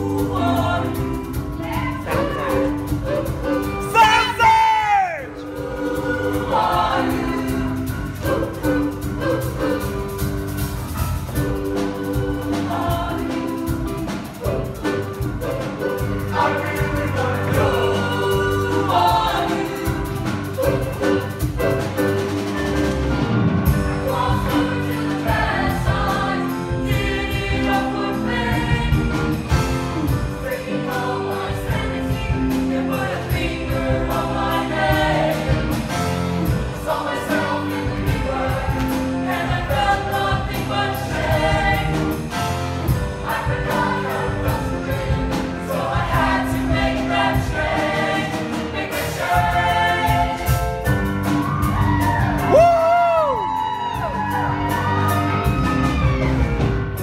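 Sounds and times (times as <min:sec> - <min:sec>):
choir singing in harmony: 0:00.0 - 0:57.0
instrumental accompaniment with beat: 0:00.0 - 0:57.0.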